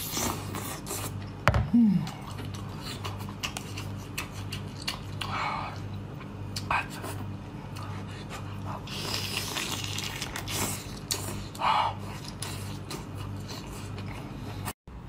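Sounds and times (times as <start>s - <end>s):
low electrical hum: 0.0s - 15.0s
chewing: 2.2s - 6.7s.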